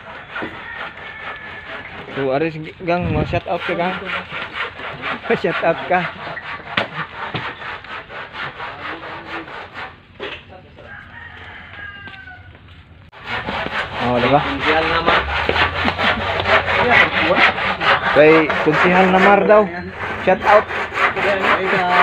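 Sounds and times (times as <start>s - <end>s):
rooster crowing: 0.0s - 2.1s, 10.8s - 12.7s
hand saw cutting wood: 0.0s - 10.4s, 13.1s - 22.0s.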